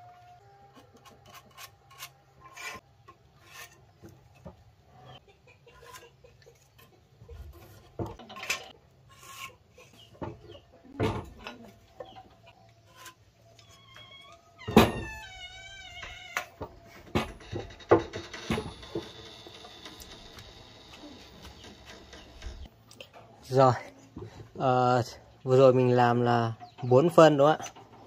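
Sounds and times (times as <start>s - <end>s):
metal square scraping and tapping: 0.7s - 3.8s.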